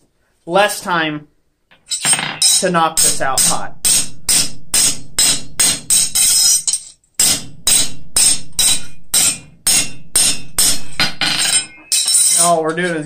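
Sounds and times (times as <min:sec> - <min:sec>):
hammer striking steel on anvil: 0:01.9 - 0:12.6.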